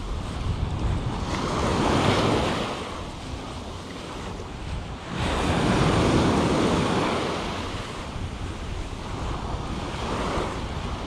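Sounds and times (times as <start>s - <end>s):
small waves washing on sand: 0.0s - 11.0s
wind rumble on microphone: 0.0s - 11.0s.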